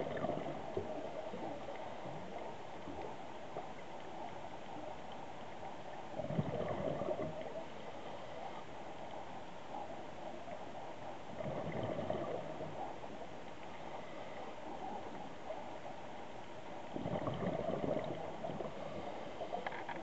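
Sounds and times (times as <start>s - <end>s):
scuba exhaled bubbles: 0.0s - 3.1s, 6.1s - 7.7s, 11.3s - 13.0s, 16.8s - 19.2s
steady underwater hiss: 0.0s - 20.0s.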